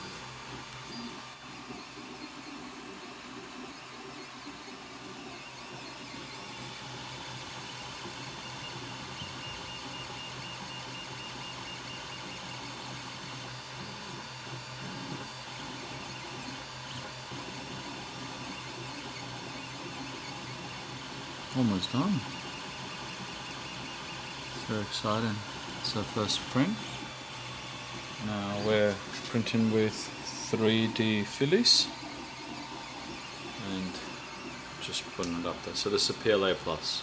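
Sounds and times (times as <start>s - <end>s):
printer fans and motors whirring: 0.0s - 37.0s.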